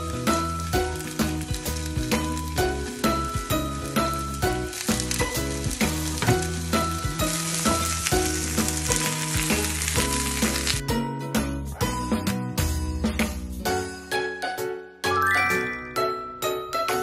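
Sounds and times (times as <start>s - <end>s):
food sizzling in frying pan: 0.0s - 10.8s.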